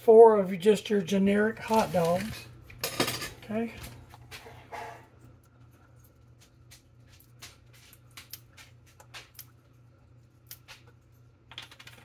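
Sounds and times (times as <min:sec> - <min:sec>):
low steady hum: 0:00.0 - 0:12.0.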